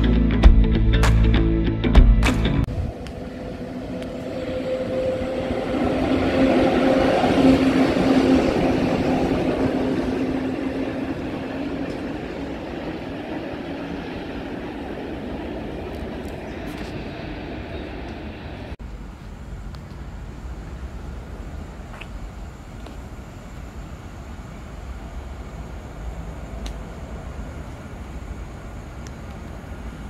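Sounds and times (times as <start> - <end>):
diesel locomotive engine hum: 0.0 - 30.0
train wheels rumbling: 2.6 - 19.2.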